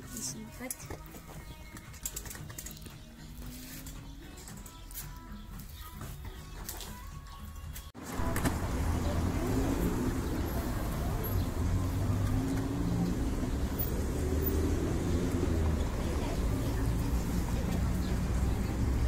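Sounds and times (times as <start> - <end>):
low rumble of cars: 8.0 - 19.0.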